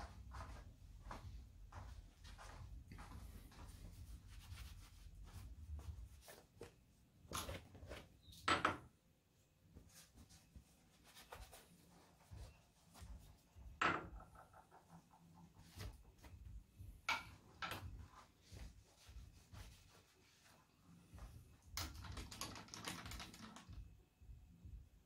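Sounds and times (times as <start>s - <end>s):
cloth rag wiping swishes: 1.8s - 7.0s, 9.7s - 13.6s, 18.0s - 21.6s
cloth rag rubbing metal: 18.0s - 21.0s.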